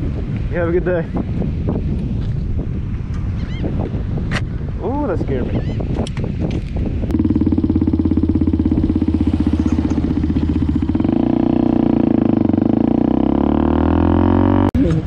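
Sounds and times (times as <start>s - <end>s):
motorcycle engine pulling away: 7.1s - 15.0s.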